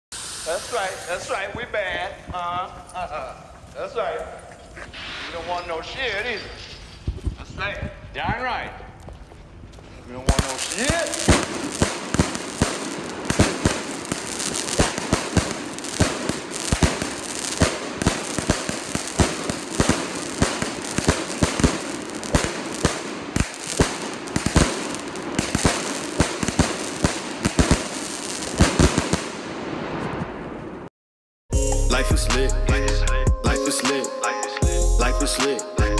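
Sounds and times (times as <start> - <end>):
firework crackling: 0.1 - 3.4, 10.2 - 30.7
firework shot reports: 0.2 - 2.3, 10.3 - 30.7.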